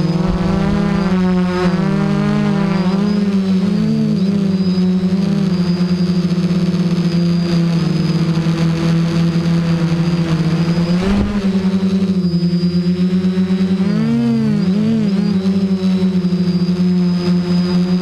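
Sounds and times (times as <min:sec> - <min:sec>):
rush of noise: 0:00.0 - 0:05.8, 0:09.8 - 0:12.9
drone motors buzzing whine: 0:00.0 - 0:18.0.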